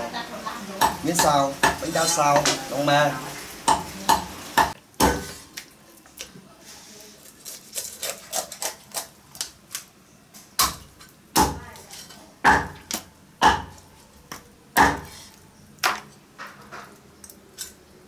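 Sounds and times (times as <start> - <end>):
cleaver chopping on cutting board: 14.8 - 15.2.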